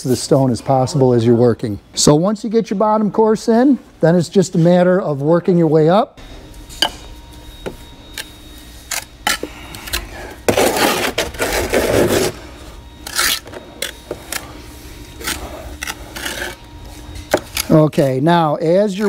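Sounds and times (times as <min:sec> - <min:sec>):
trowel scraping mortar: 0:10.5 - 0:12.4, 0:15.1 - 0:16.6.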